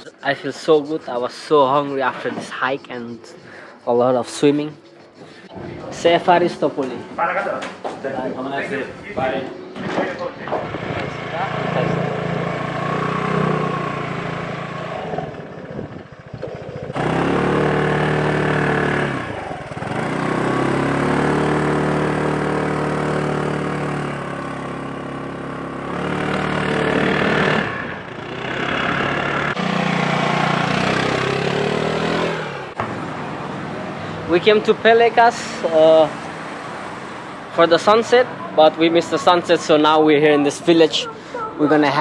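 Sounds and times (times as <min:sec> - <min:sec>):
scooter engine revving: 0:10.4 - 0:42.0.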